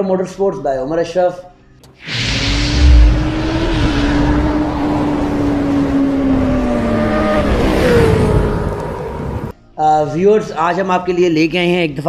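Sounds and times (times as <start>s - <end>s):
loud whoosh: 1.9s - 7.1s
motorcycle engine: 2.7s - 9.5s.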